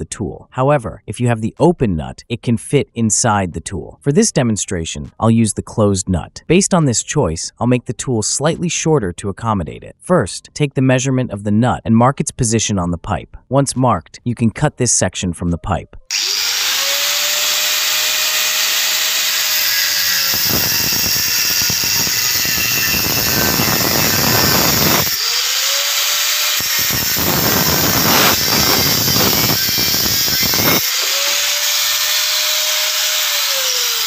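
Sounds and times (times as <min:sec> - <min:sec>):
angle grinder cutting metal pipe: 0:16.1 - 0:34.0.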